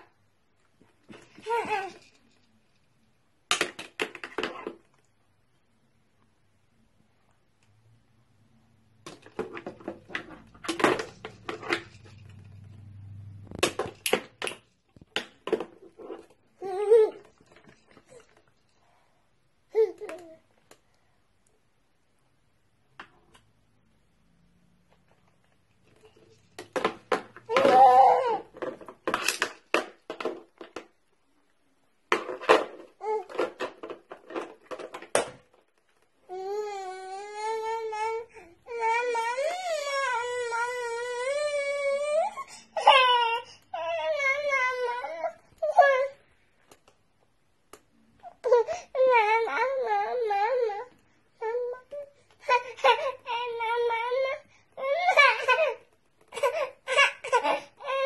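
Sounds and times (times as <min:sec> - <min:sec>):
plastic toys clattering on a tray: 0:03.5 - 0:05.0, 0:09.0 - 0:12.5, 0:26.5 - 0:31.0, 0:32.1 - 0:35.7.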